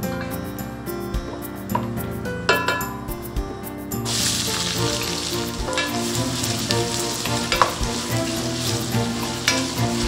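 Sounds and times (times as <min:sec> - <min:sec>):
onions sizzling in hot oil: 0:04.1 - 0:10.0
wooden spatula stirring: 0:04.1 - 0:10.0.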